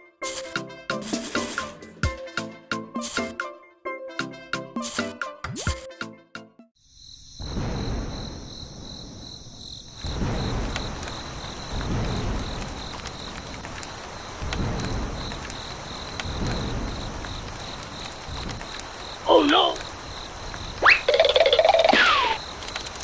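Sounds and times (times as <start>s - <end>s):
insect chirping: 6.8s - 23.0s.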